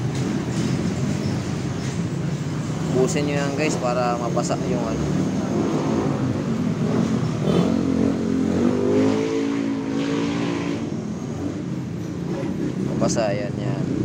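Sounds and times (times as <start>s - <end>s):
vehicle engine revving: 2.7s - 13.0s.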